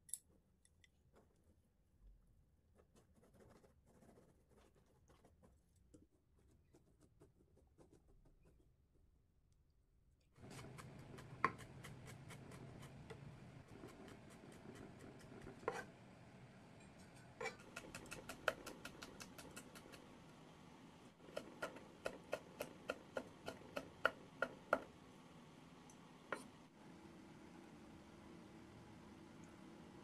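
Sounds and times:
knife chopping on wooden board: 21.2 - 24.9.

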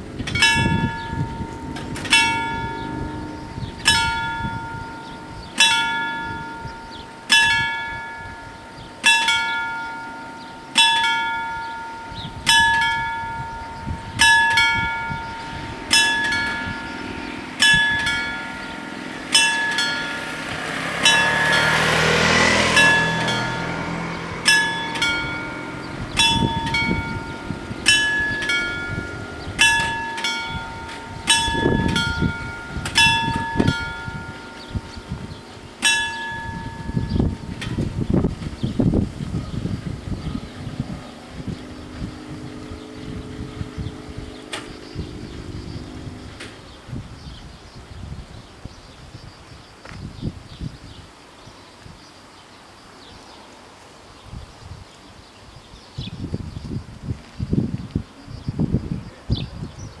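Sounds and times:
level-crossing warning bell: 0.0 - 47.8.

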